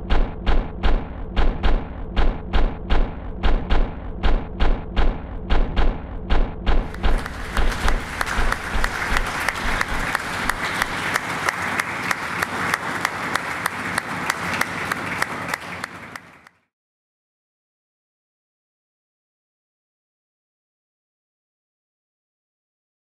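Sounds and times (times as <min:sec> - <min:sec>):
deep thumps: 0:00.0 - 0:10.6
audience applauding: 0:06.9 - 0:16.6.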